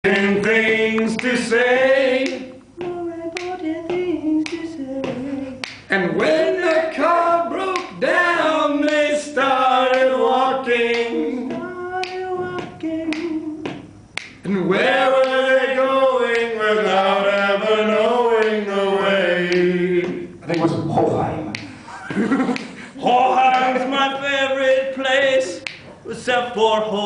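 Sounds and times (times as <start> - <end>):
men singing a cappella: 0.0 - 20.8, 22.5 - 27.0
finger snaps: 2.2 - 5.9, 7.7 - 8.0, 10.9 - 14.5, 19.5 - 20.6, 21.5 - 21.8, 22.4 - 22.8, 25.6 - 25.9.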